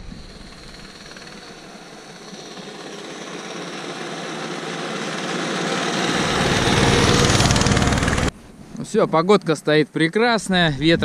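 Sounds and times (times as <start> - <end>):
engine running: 0.0 - 8.3.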